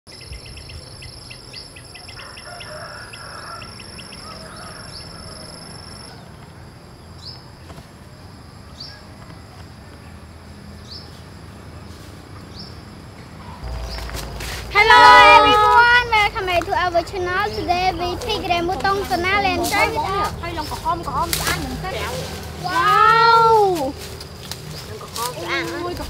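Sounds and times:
higher insect drone: 13.6s - 25.9s.

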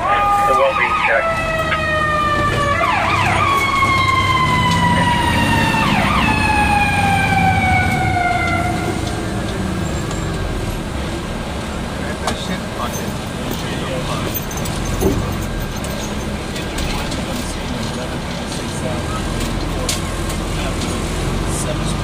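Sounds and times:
fire engine siren: 0.0s - 11.7s
diesel engine rumble: 0.0s - 22.0s
road noise: 0.0s - 22.0s.

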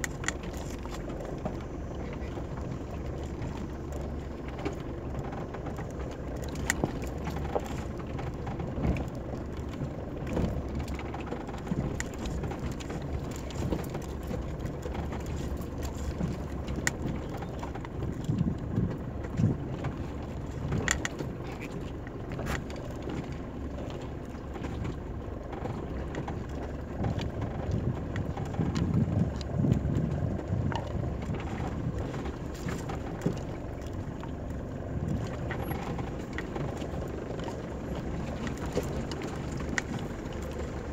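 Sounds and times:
vehicle clicks and knocks: 4.4s - 23.5s.

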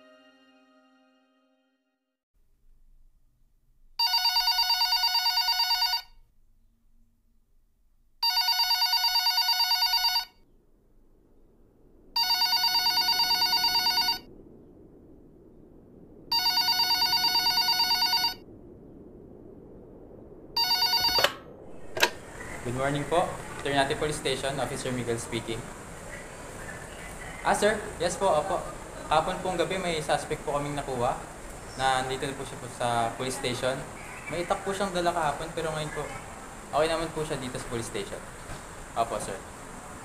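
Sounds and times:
telephone ringing with electronic trill: 4.0s - 6.2s, 8.2s - 10.4s, 12.2s - 14.3s, 16.3s - 18.4s, 20.6s - 22.2s.

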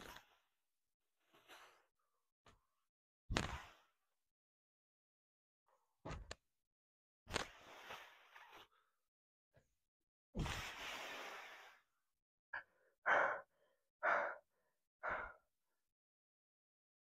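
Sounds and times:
man breathing hard: 12.6s - 15.5s.

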